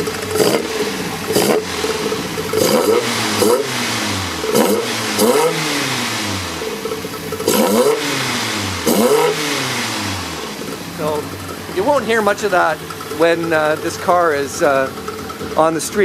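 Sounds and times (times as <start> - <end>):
engine revving in quick blips: 0.0 - 15.0.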